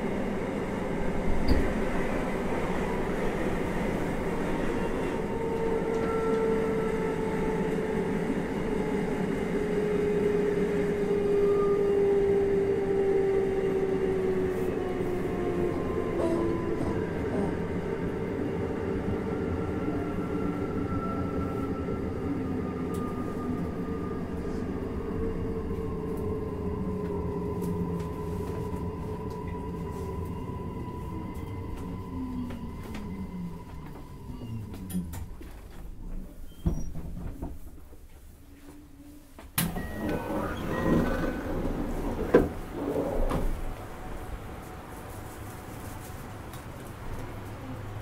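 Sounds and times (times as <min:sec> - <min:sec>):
train wheels rumbling on rail: 0:00.0 - 0:38.2
traction motor whine: 0:39.6 - 0:43.7.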